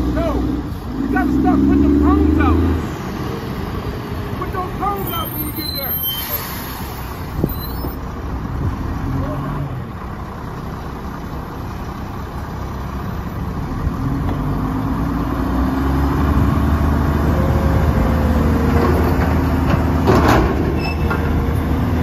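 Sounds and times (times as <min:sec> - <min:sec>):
garbage truck engine revving: 0:00.0 - 0:05.0, 0:13.5 - 0:22.0.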